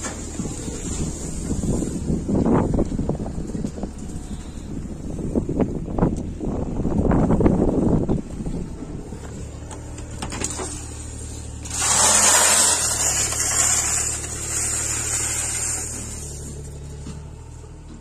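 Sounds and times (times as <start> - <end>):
car engine idling: 0.0 - 18.0
loud rushing hiss: 10.8 - 16.4.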